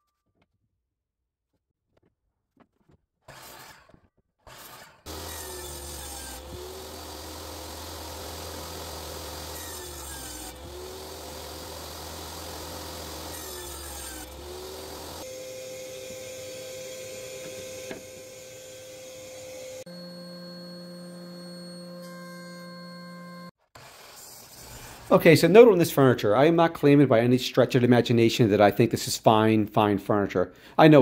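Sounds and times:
power tool working wood: 0:04.5 - 0:25.1.

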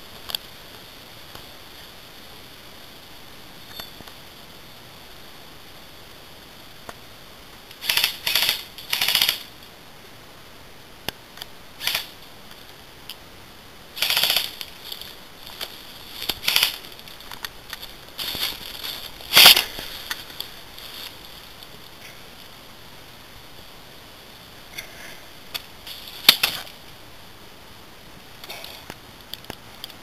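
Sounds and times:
airsoft guns firing bursts: 0:07.8 - 0:09.4, 0:14.0 - 0:14.6.

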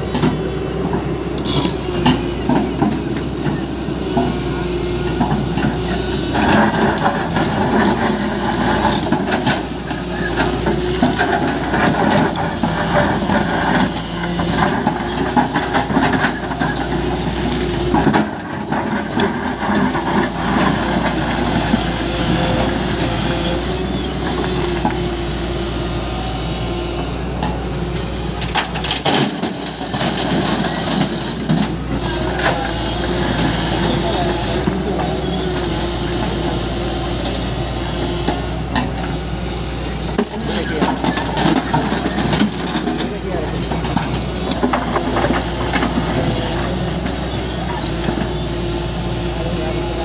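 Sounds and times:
excavator diesel engine: 0:00.0 - 0:50.0
bucket scraping rocky earth: 0:40.0 - 0:48.4.

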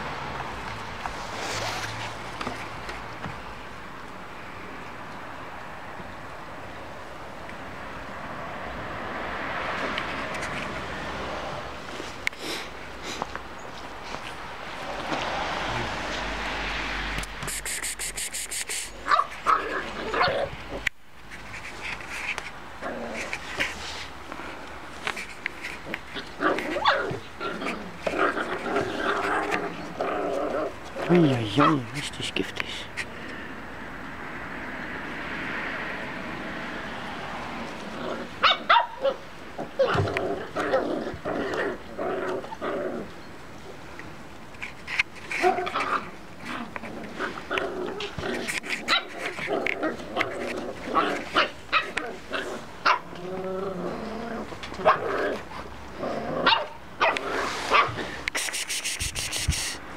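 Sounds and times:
puppies play-fighting: 0:09.3 - 0:33.4, 0:36.9 - 0:59.9
puppies yipping and barking: 0:26.0 - 0:30.8, 0:38.2 - 0:41.8, 0:45.2 - 0:53.2, 0:56.4 - 0:59.8
puppy yips: 0:26.7 - 0:27.2, 0:38.4 - 0:39.2.

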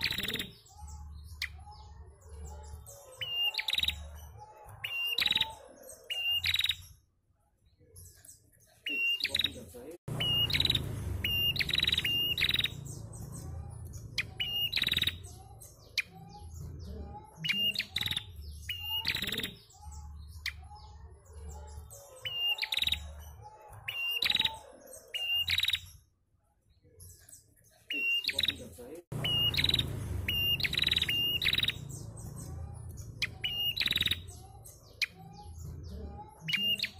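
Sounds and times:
bird calling with rattling trill: 0:00.0 - 0:04.2, 0:04.8 - 0:07.0, 0:09.0 - 0:16.6, 0:17.3 - 0:23.2, 0:23.9 - 0:26.0, 0:27.9 - 0:35.7.

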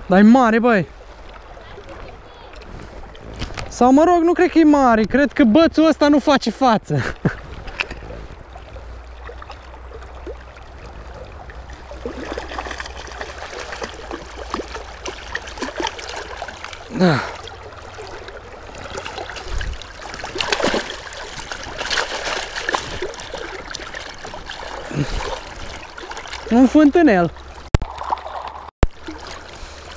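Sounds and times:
river current rushing: 0:07.4 - 0:29.9
fish splashing at the surface: 0:08.5 - 0:26.5, 0:27.4 - 0:29.9.

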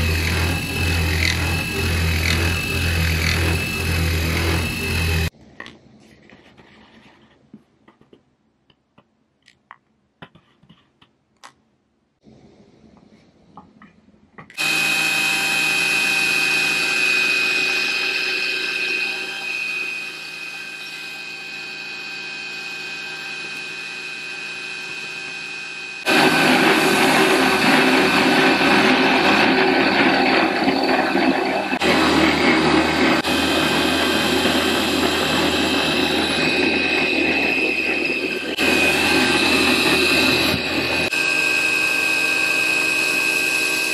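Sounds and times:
router spindle milling steel: 0:00.0 - 0:05.3, 0:14.6 - 0:43.9.

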